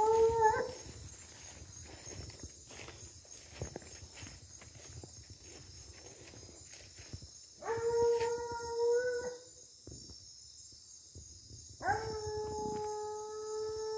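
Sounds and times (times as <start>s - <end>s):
hound howling: 0.0s - 0.9s, 7.6s - 9.5s
faint rustling of brush: 0.0s - 8.5s.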